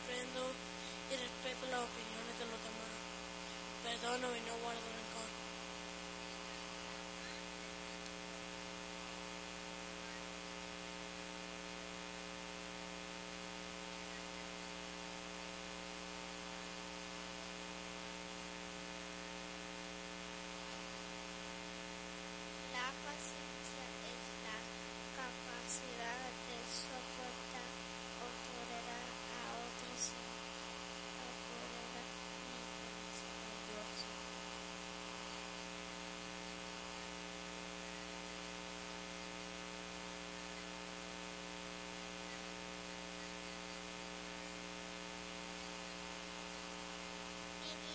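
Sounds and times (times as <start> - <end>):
faint murmuring: 0.0 - 5.4, 22.7 - 30.2, 47.6 - 47.9
electrical hum and buzz: 0.0 - 47.9.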